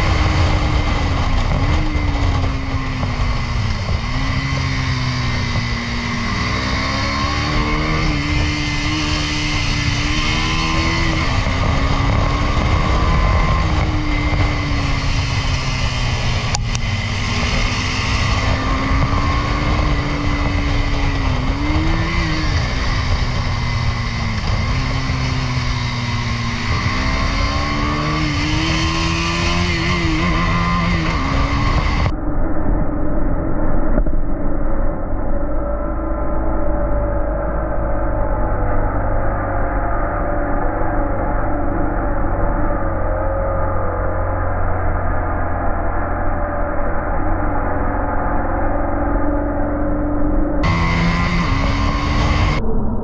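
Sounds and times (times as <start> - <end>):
motorcycle engine running: 0.0 - 32.2, 46.6 - 53.0
wind rushing: 0.0 - 36.2, 50.6 - 53.0.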